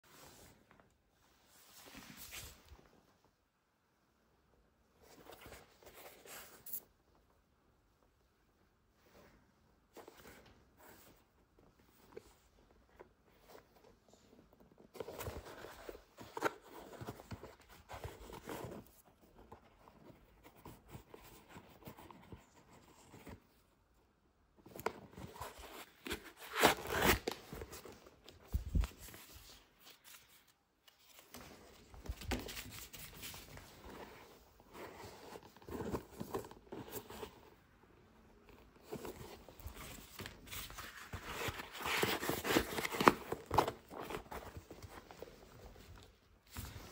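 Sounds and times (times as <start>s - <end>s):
fingers rustling football boot: 24.6s - 46.9s.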